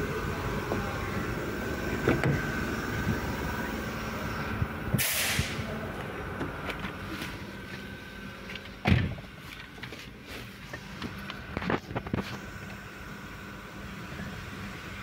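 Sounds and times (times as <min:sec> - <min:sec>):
steady background hum: 0:00.0 - 0:15.0
car door shutting: 0:01.9 - 0:03.2, 0:08.8 - 0:09.2
brief hiss: 0:05.0 - 0:05.6.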